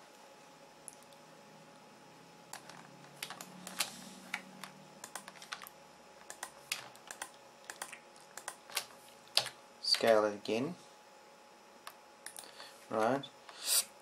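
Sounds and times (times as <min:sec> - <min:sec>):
computer keyboard clicks: 0:02.5 - 0:03.9, 0:04.6 - 0:10.2.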